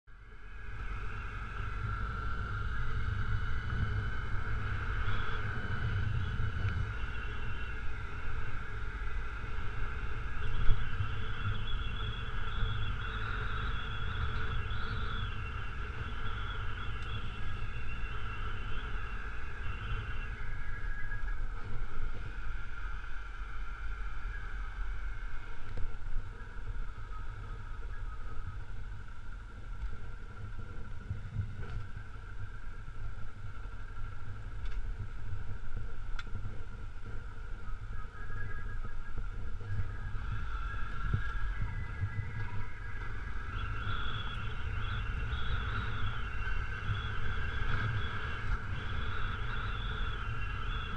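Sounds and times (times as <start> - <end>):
motorcycle engine rumbling: 0.4 - 24.8.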